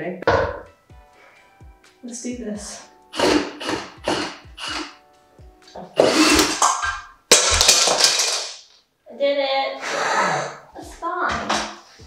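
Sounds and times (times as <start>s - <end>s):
background music: 0.0s - 8.2s, 9.9s - 12.0s
cordless drill running: 3.1s - 4.9s, 6.0s - 6.6s.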